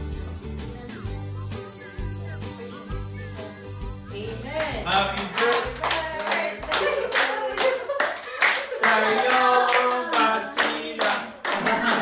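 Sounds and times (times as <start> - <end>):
group clapping in time: 4.6 - 12.0
people singing along: 8.7 - 12.0.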